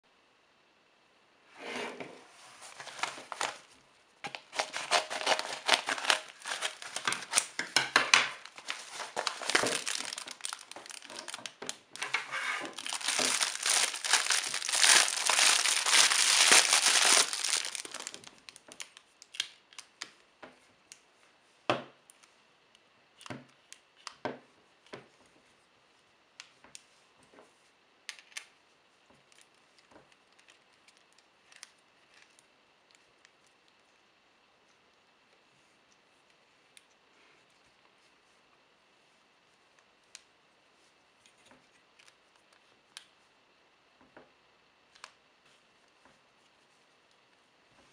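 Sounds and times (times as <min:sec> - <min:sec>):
plastic bag crinkling: 0:02.6 - 0:03.7, 0:04.3 - 0:20.0.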